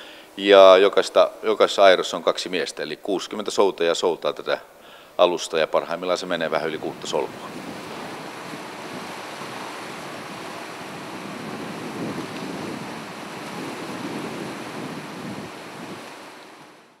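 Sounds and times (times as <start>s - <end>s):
choppy sea water: 6.4s - 17.0s
wind buffeting microphone: 6.6s - 16.9s
wind rushing: 6.7s - 16.8s.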